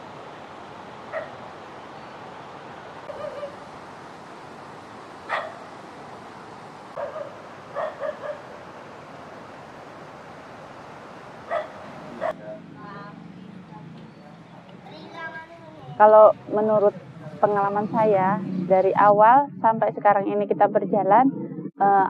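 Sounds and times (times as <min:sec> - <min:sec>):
steady background hiss: 0:00.0 - 0:13.0
dog barking: 0:01.1 - 0:01.4, 0:03.1 - 0:03.6, 0:05.3 - 0:05.7, 0:07.0 - 0:08.6, 0:11.5 - 0:12.6.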